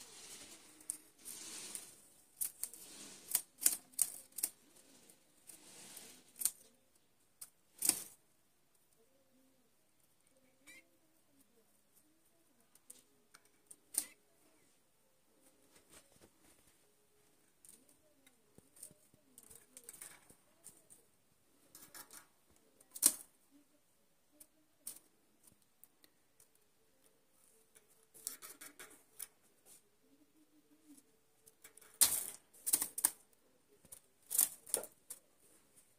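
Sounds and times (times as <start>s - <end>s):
birds tapping and rustling in cage: 17.6s - 23.4s, 27.6s - 29.8s, 30.9s - 35.9s.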